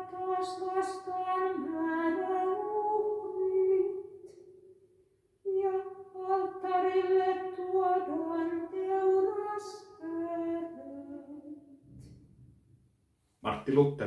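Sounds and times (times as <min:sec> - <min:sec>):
woman singing unaccompanied: 0:00.0 - 0:04.4, 0:05.5 - 0:11.7.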